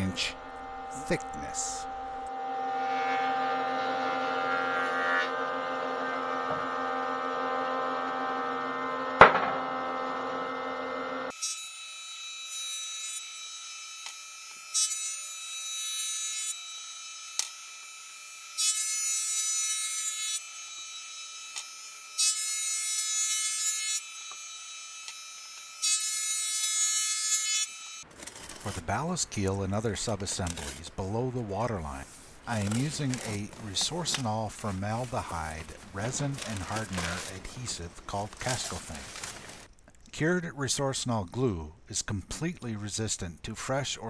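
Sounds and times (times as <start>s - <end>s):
thickness planer motor hum: 0.0s - 11.3s
sharp knock: 9.2s - 9.6s.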